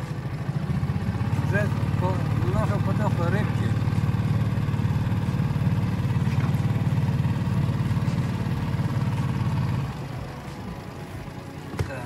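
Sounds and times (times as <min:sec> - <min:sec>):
outboard motor running: 0:00.0 - 0:12.0.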